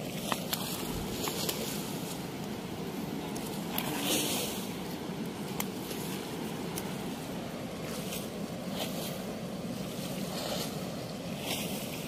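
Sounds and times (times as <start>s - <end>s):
water rushing through sluice gate: 0.0s - 12.0s.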